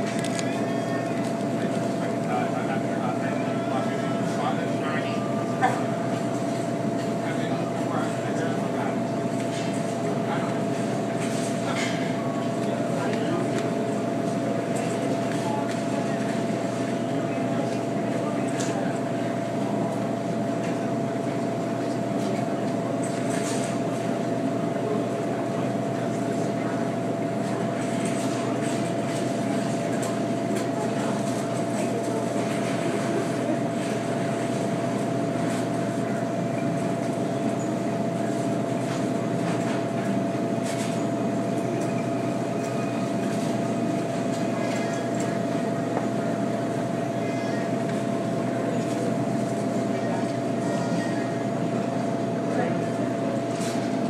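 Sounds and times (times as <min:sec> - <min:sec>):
steady machine hum: 0:00.0 - 0:54.0.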